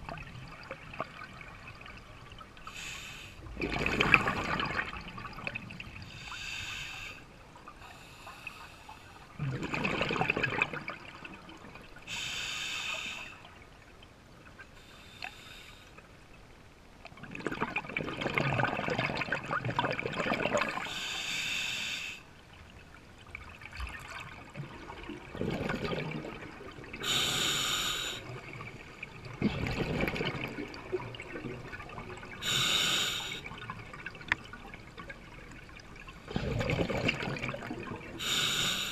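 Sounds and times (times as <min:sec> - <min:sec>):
diver inhaling through regulator: 0:02.7 - 0:03.4, 0:06.1 - 0:07.3, 0:12.1 - 0:13.4, 0:20.8 - 0:22.3, 0:27.0 - 0:28.3, 0:32.4 - 0:33.5, 0:38.2 - 0:38.9
exhaled bubbles rushing: 0:03.5 - 0:06.0, 0:09.4 - 0:11.8, 0:17.2 - 0:20.8, 0:23.6 - 0:27.0, 0:28.3 - 0:32.4, 0:33.5 - 0:38.2.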